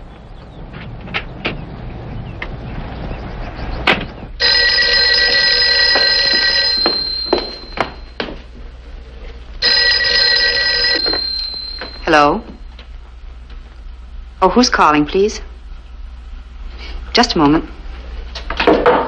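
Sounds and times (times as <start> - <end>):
telephone bell ringing: 4.4 - 8.3, 9.6 - 12.6.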